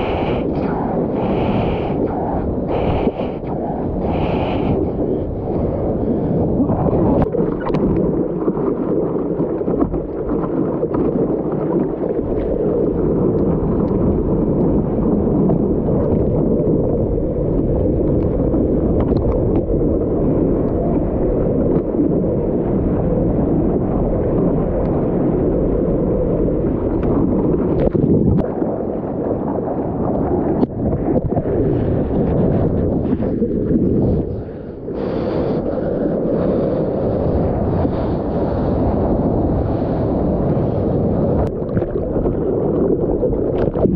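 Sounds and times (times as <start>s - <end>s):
whitewater rushing: 0.0s - 2.1s
wind buffeting microphone: 0.0s - 43.9s.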